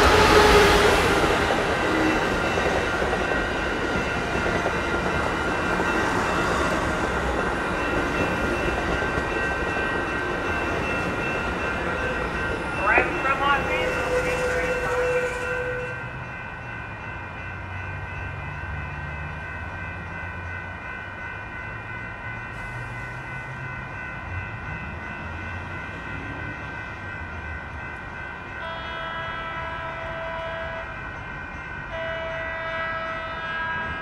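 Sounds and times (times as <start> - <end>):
train horn: 0.0 - 1.2, 12.8 - 16.2, 28.6 - 31.0, 31.9 - 34.0
diesel locomotive engine rumbling: 0.0 - 34.0.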